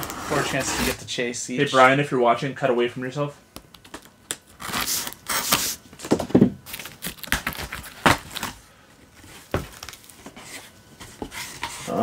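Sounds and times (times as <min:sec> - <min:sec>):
cardboard flaps scraping and crinkling: 0:00.0 - 0:01.0
packing tape ripping: 0:03.8 - 0:05.8, 0:06.6 - 0:08.6.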